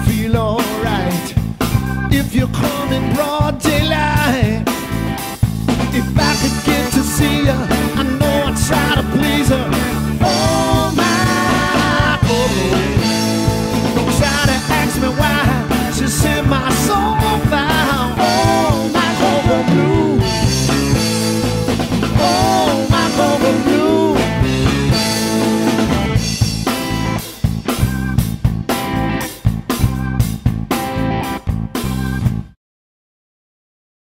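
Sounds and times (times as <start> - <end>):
blues-rock band playing: 0.0 - 32.6.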